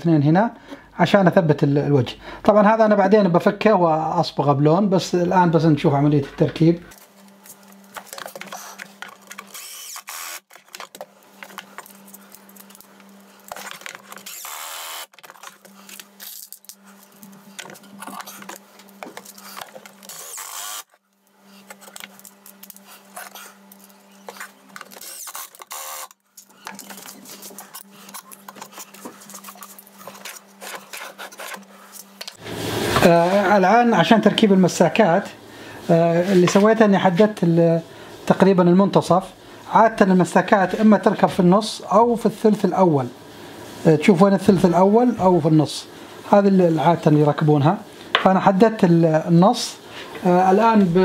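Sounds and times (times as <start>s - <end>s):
cordless drill whining: 9.4s - 10.5s, 14.2s - 15.2s, 20.0s - 20.9s, 24.9s - 26.2s.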